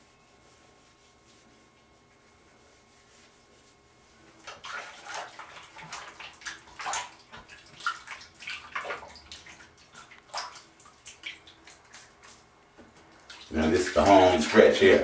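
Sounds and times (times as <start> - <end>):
water splashing in a sink: 4.4 - 15.0.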